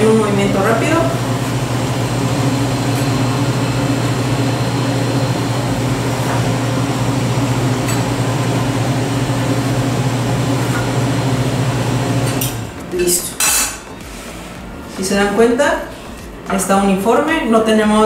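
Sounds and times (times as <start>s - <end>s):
low machine hum: 0.0s - 17.2s.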